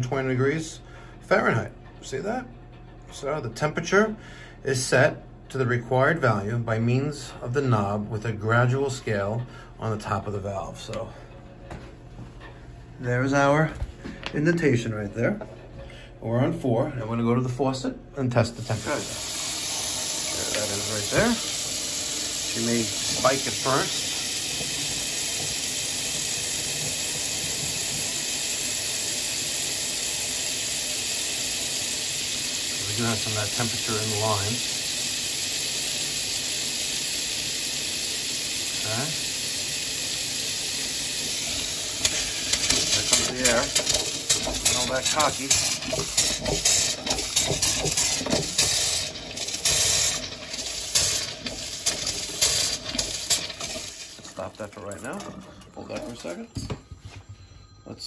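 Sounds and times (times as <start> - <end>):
faucet running into steel sink: 18.4 - 56.4.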